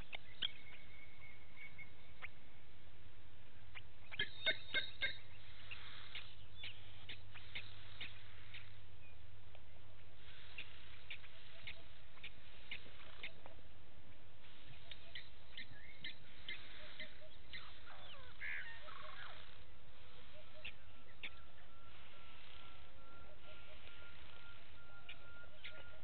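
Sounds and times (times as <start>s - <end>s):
gliding bird calls: 3.7s - 8.8s, 10.2s - 13.7s, 14.4s - 26.0s
lapwings calling sharp tink notes: 3.7s - 8.8s, 14.4s - 26.0s.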